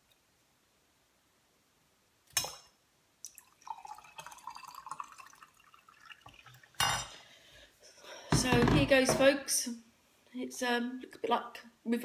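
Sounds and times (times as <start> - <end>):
tea trickling into a glass: 3.3 - 6.8
loud knock: 8.3 - 9.3.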